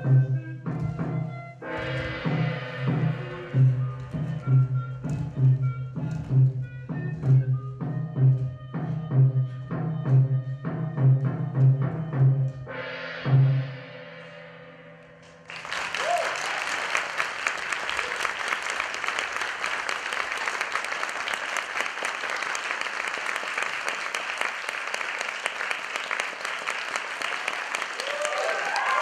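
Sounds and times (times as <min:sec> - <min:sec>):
audience applause: 0:15.4 - 0:29.0.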